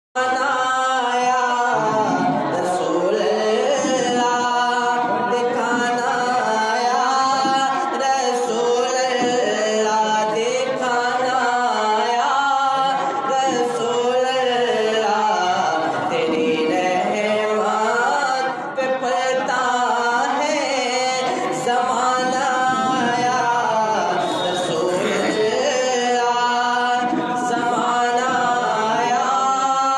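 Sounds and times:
man chanting: 0.2 - 29.9.

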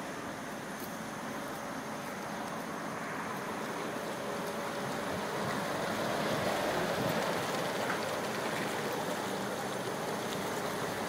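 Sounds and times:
jacuzzi jets bubbling water: 3.5 - 11.0.

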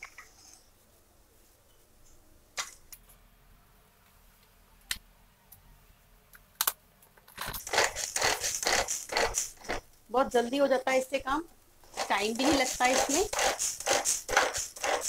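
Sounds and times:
zipping cord pulls spinning blades: 7.6 - 9.8, 11.9 - 15.0.

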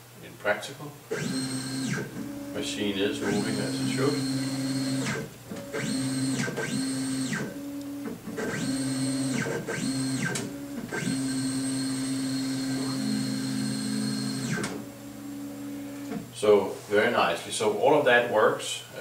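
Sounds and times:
stepper motors whining: 1.1 - 16.3.

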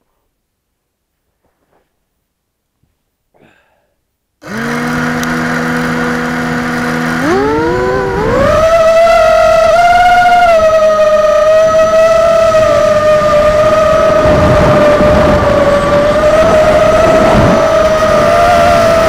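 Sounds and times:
quadcopter motors whining: 4.4 - 19.0.

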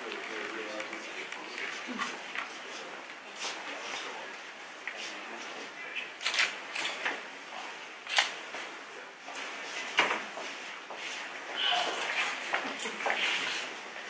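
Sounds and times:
camera shutter clicks: 6.2 - 6.9, 8.1 - 8.4.

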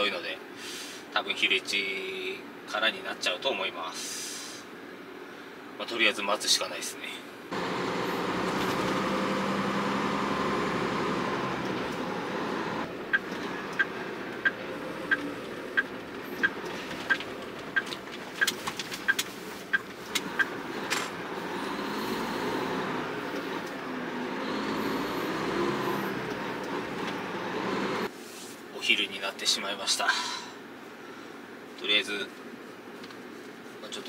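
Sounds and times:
diesel truck engine running: 7.5 - 28.1
turn signal ticking: 7.6 - 28.1.

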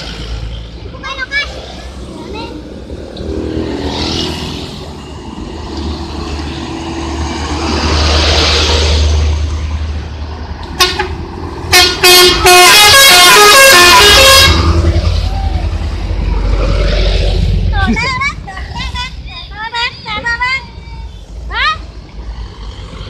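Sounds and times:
traffic engine and tyre noise: 0.0 - 23.0
multi-tone musical truck horn: 10.8 - 15.0.

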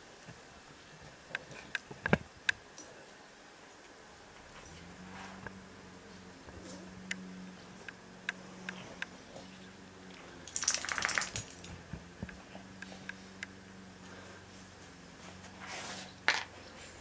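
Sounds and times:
dog collar tag jingling: 10.5 - 11.8.

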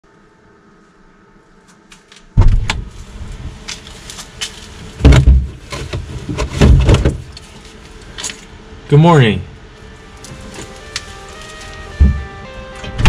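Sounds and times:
items clicking and knocking in fridge: 3.7 - 7.6, 10.3 - 13.0
heavy thumps: 5.0 - 7.3, 11.9 - 13.0.

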